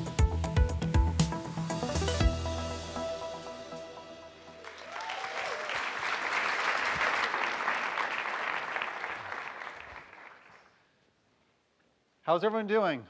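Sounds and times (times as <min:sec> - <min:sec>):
intro music: 0:00.0 - 0:04.9
audience applauding: 0:04.6 - 0:10.8.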